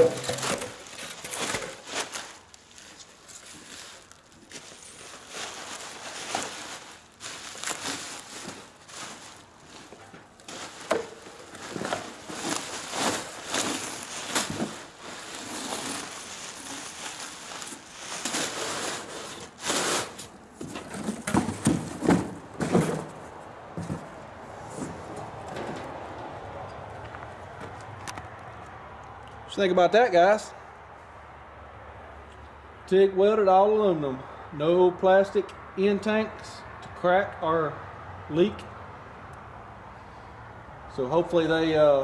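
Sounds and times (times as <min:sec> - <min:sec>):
bubble wrap crinkling: 0:00.0 - 0:20.3
cardboard scraping: 0:00.0 - 0:25.9.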